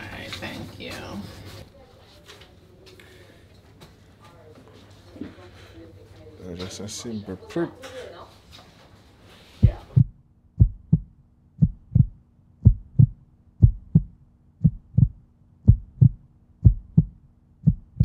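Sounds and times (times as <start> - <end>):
faint steady hum: 9.2 - 18.0
heartbeat thumps: 9.6 - 18.0.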